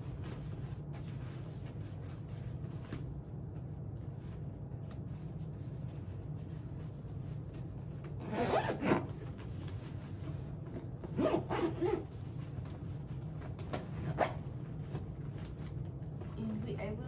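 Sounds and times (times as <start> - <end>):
suitcase zipper pulled shut: 8.2 - 9.2, 11.1 - 12.1.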